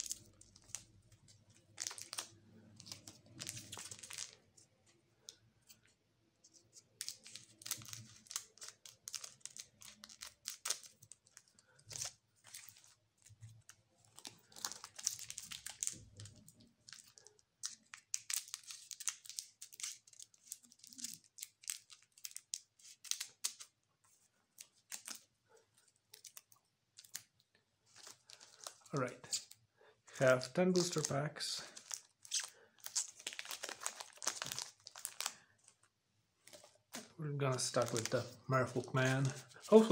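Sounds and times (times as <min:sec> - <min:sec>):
foil pack crinkling: 0:01.6 - 0:04.4, 0:07.0 - 0:13.0, 0:13.6 - 0:23.7, 0:27.9 - 0:29.0, 0:30.7 - 0:35.8, 0:36.5 - 0:39.9.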